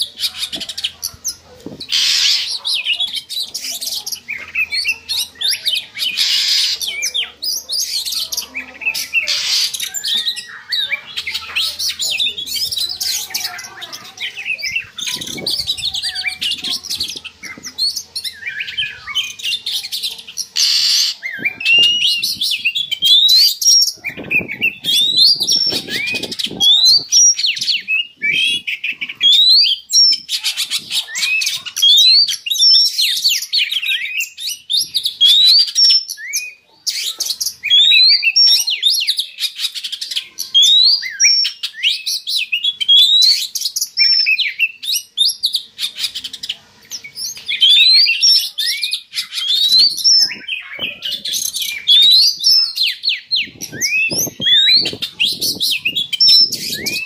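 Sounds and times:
bird song with rising whistles: 0:20.6 - 0:30.2, 0:40.6 - 0:45.6, 0:47.1 - 0:57.0.

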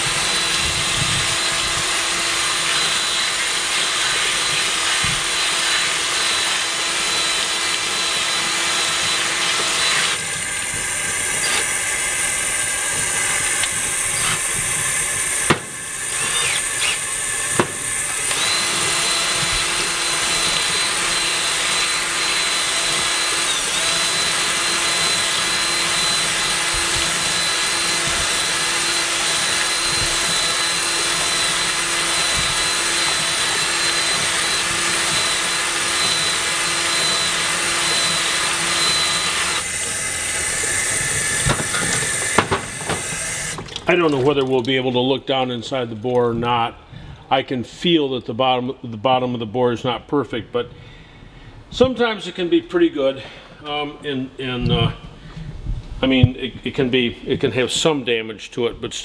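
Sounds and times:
cordless drill whining: 0:00.0 - 0:43.8
tap water running: 0:00.0 - 0:45.2.

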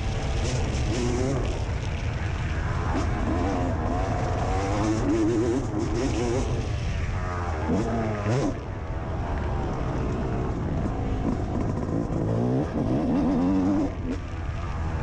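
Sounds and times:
motocross bike engine revving: 0:00.0 - 0:02.0, 0:02.7 - 0:08.8, 0:11.2 - 0:14.4.

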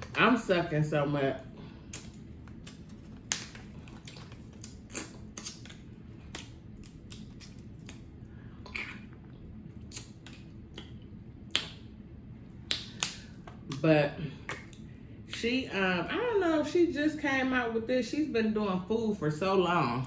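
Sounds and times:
crab shells cracking: 0:01.8 - 0:08.1.

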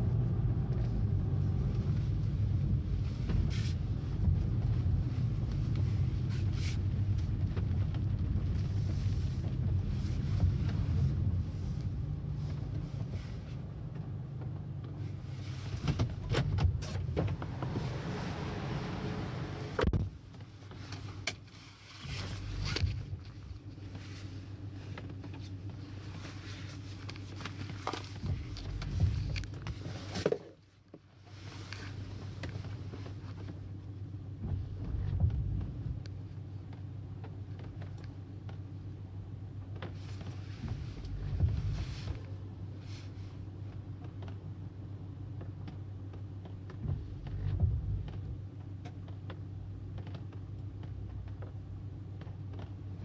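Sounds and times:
car engine and road drone: 0:00.0 - 0:53.0
raindrops ticking on car: 0:01.6 - 0:15.1, 0:32.2 - 0:43.0, 0:43.6 - 0:53.0.

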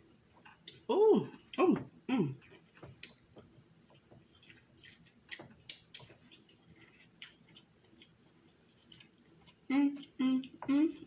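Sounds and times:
person chewing: 0:02.3 - 0:11.0.

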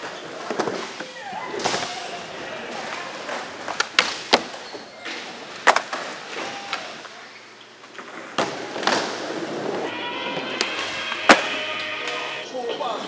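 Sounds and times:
skateboard landings: 0:00.0 - 0:04.6, 0:05.2 - 0:07.0, 0:08.0 - 0:12.3
skateboard wheels rolling on concrete: 0:00.0 - 0:12.4
skateboard striking ledge: 0:10.5 - 0:12.2
skateboard tail pops: 0:10.6 - 0:12.2.

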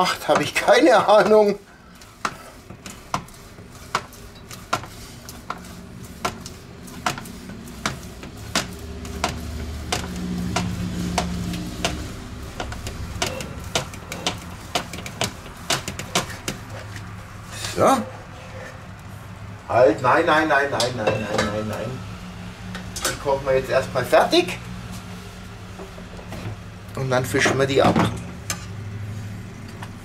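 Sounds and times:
grater hopper sliding and clicking: 0:00.1 - 0:17.1.

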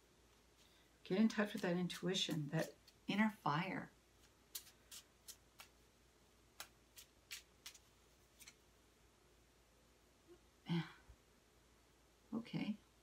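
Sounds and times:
cards clicking and snapping: 0:04.2 - 0:05.8, 0:06.6 - 0:08.6.

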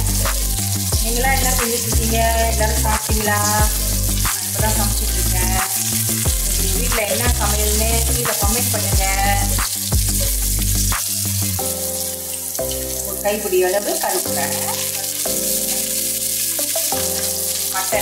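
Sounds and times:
music with deep bass line: 0:00.0 - 0:13.0
onions sizzling in oil: 0:00.0 - 0:18.0.

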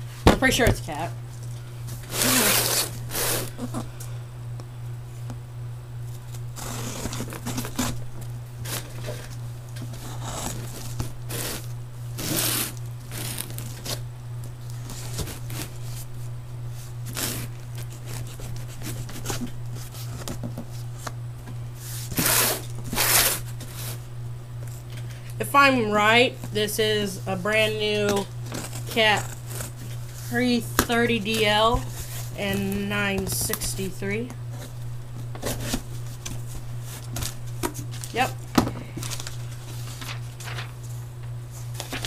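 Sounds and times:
packing tape ripping: 0:02.0 - 0:03.7, 0:06.5 - 0:08.0, 0:10.1 - 0:14.0, 0:17.0 - 0:19.5, 0:22.1 - 0:24.0
low hum: 0:20.9 - 0:42.0.

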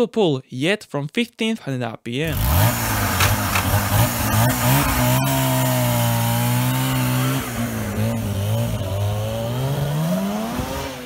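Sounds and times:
motorcycle engine buzzing: 0:02.3 - 0:11.0.

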